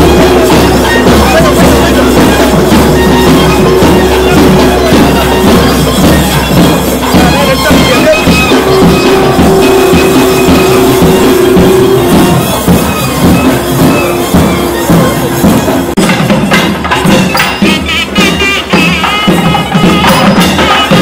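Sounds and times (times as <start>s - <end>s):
reed pipe long note: 0.0s - 6.6s, 7.2s - 15.4s
drumming: 0.0s - 21.0s.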